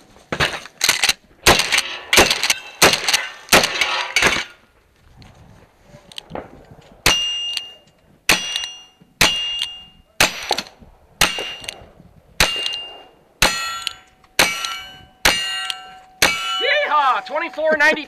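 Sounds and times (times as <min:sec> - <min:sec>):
bullets ringing on steel target: 0:07.1 - 0:10.4, 0:12.4 - 0:17.5.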